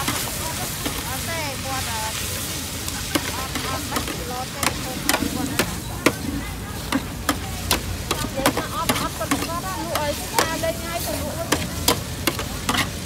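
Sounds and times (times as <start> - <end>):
cooking utensils clacking: 0.0 - 1.2, 2.9 - 13.0
faint market chatter: 0.0 - 13.0
steady background noise: 0.0 - 13.0.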